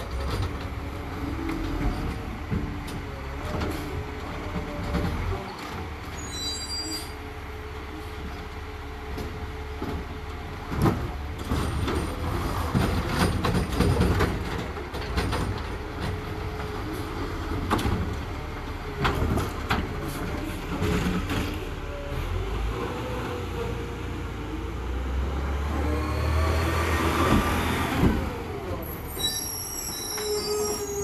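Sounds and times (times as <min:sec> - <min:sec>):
garbage truck rumble: 0:00.0 - 0:31.0.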